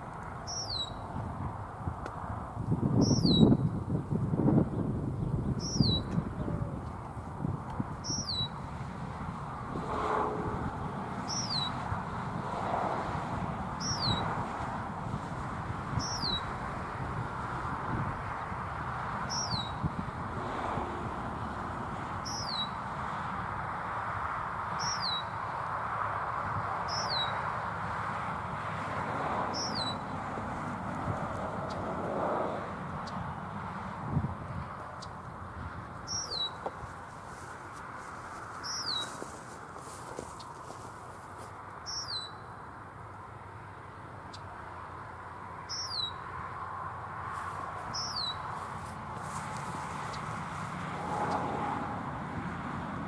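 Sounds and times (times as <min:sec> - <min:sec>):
bird chirping: 0:00.5 - 0:01.0, 0:03.0 - 0:03.6, 0:05.2 - 0:06.1, 0:08.0 - 0:08.6, 0:11.3 - 0:11.8, 0:36.1 - 0:36.6, 0:38.6 - 0:39.2, 0:41.8 - 0:42.5, 0:45.7 - 0:46.2, 0:47.9 - 0:48.5
steady rushing noise: 0:06.2 - 0:19.0.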